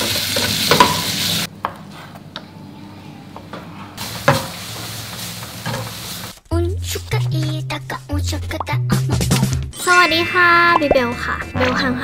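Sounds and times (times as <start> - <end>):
food sizzling in a pan: 0.0 - 1.5, 4.0 - 6.4.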